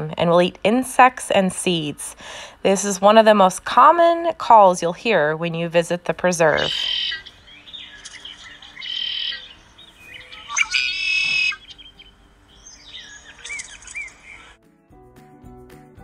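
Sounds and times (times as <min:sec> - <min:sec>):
blackbird calling: 0:06.4 - 0:14.6.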